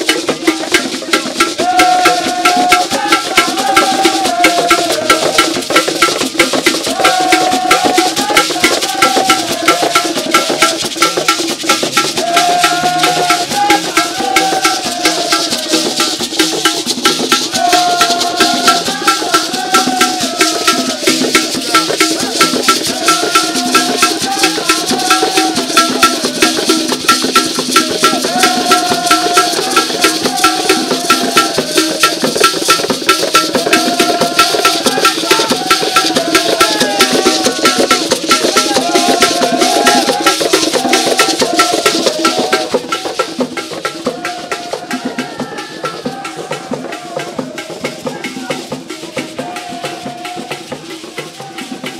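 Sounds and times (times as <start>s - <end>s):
shaker: 0.0s - 51.9s
wooden hand drums: 0.0s - 51.9s.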